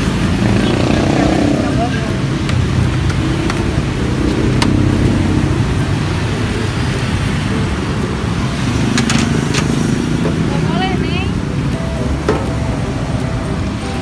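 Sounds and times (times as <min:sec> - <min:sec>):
low rumble of road traffic: 0:00.0 - 0:14.0.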